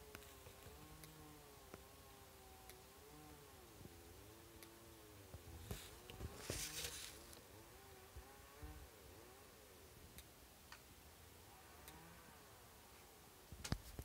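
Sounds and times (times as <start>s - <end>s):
faint distant engine hum: 0.0s - 13.5s
light ticks: 0.1s - 1.9s, 2.6s - 2.9s, 4.6s - 4.8s, 10.1s - 10.9s.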